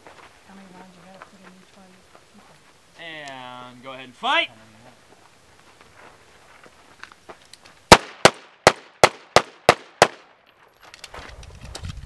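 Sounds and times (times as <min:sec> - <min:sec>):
pistol shots: 0:07.9 - 0:10.4.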